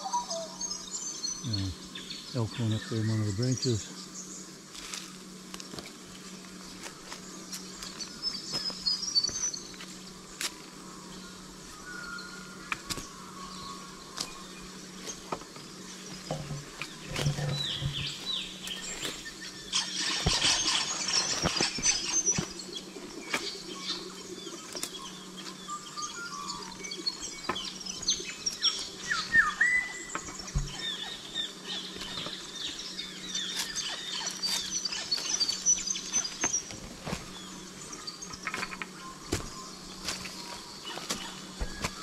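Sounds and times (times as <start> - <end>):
birds chirping: 0.0 - 42.0
footsteps on dry leaves and stones: 4.6 - 10.8, 12.6 - 25.6, 31.9 - 42.0.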